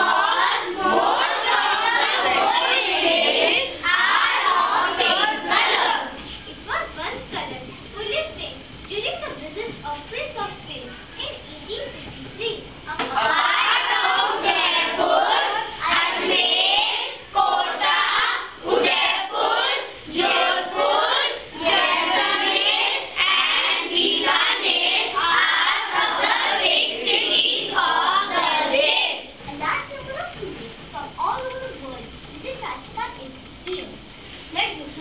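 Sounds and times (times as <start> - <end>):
children singing in unison: 0.0 - 6.2, 13.2 - 29.3.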